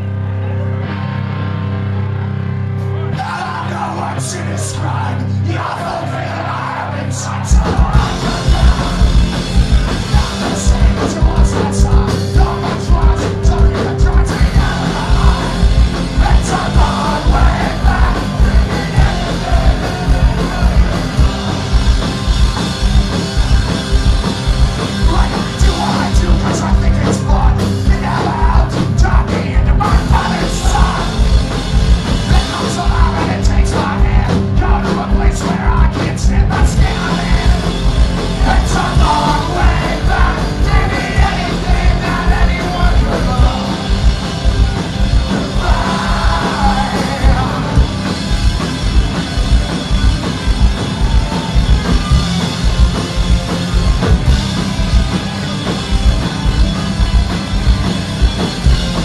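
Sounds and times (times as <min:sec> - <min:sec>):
drums: 0:00.0 - 0:59.0
punk rock band playing live: 0:00.0 - 0:59.0
shouted vocals: 0:03.1 - 0:09.4, 0:10.0 - 0:21.7, 0:32.3 - 0:44.0, 0:45.3 - 0:47.9.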